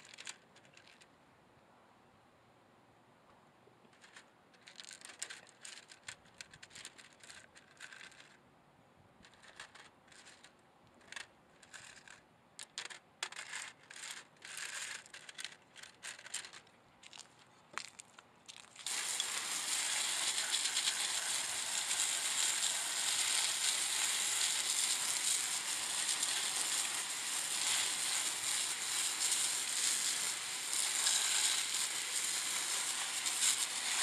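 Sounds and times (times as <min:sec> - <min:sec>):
crystals clinking and scraping: 0:04.0 - 0:08.4, 0:09.2 - 0:27.0.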